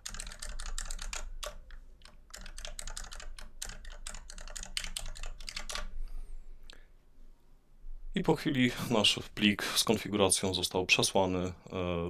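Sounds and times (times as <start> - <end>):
computer keyboard typing: 0.0 - 5.9.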